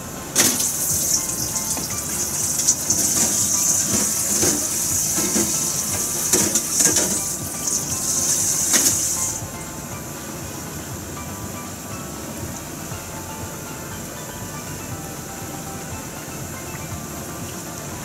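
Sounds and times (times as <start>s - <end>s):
water boiling and bubbling: 0.0s - 14.8s
gas stove hiss: 0.1s - 13.1s.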